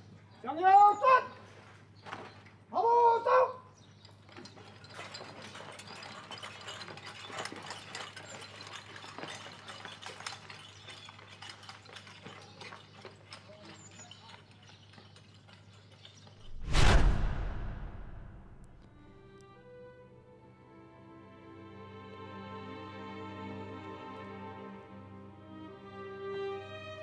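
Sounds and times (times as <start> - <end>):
gear and horse tack clinking: 3.7 - 16.6.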